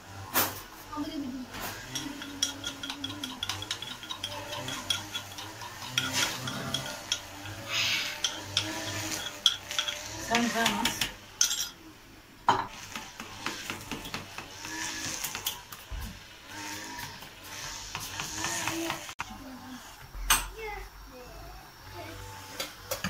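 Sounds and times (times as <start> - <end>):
spoon scraping clay mortar: 1.6 - 11.8, 12.7 - 15.7
spoon stirring yogurt: 1.8 - 11.1
spoon clinking against bowl: 1.8 - 11.8.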